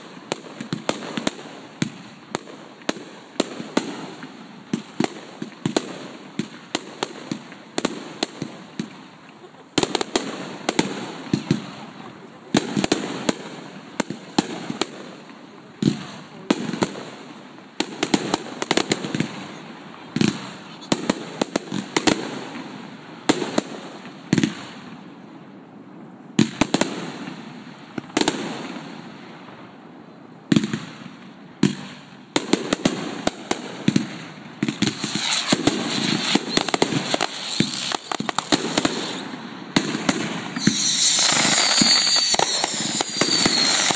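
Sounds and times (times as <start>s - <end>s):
fireworks bursting: 0.0s - 25.0s, 30.5s - 43.9s
rapid pops and crackle: 31.6s - 43.9s.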